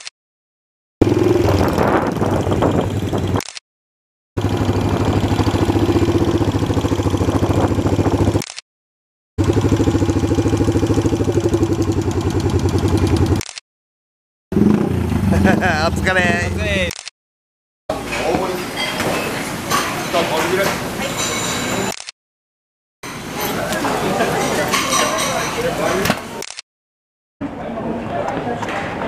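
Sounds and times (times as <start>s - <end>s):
motorcycle engine thumping: 4.4s - 8.4s, 9.4s - 13.4s.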